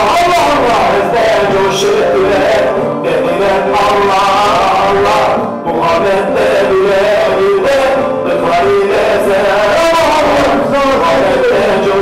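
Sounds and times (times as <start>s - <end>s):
instrumental accompaniment: 0.0s - 12.0s
man singing a hymn: 0.0s - 12.0s.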